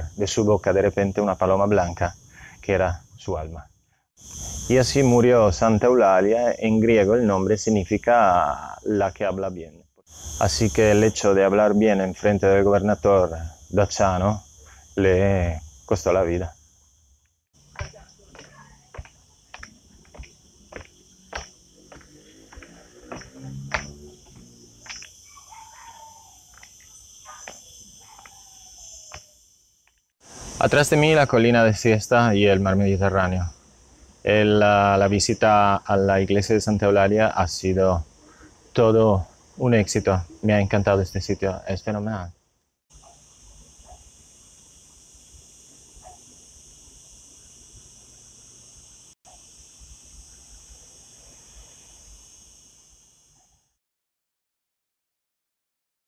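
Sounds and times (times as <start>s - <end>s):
crickets chirring: 0.0s - 53.8s
sharp clicks and taps: 17.8s - 25.1s.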